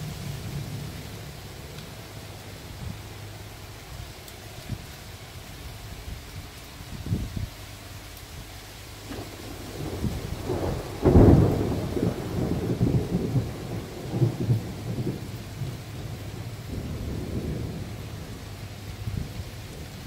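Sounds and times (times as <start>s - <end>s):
thunder rumbling: 0.0s - 4.8s, 9.0s - 20.0s
heavy rain falling: 0.0s - 20.0s.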